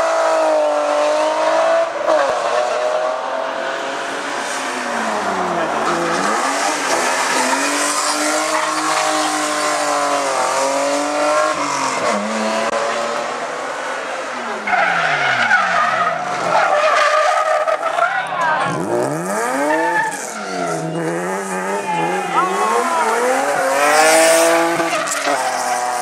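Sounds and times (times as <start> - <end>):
car engine revving: 0.0 - 16.6, 18.6 - 26.0
tyres squealing: 19.4 - 24.1.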